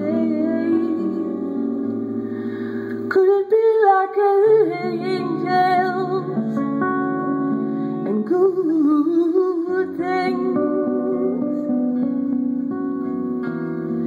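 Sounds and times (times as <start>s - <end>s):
woman singing over guitar: 0.0s - 14.0s.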